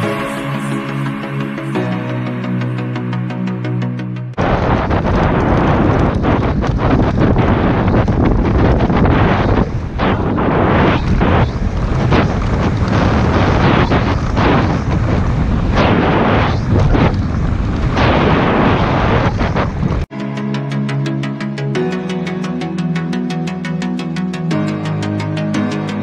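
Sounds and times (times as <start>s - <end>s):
wind buffeting microphone: 4.4s - 20.1s
bike knocking and rattling: 4.8s - 10.3s, 11.0s - 16.0s.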